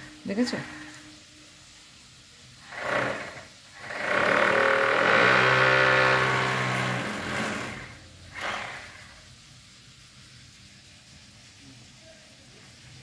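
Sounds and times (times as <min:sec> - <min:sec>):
hammer drill boring into masonry: 0:02.6 - 0:09.1.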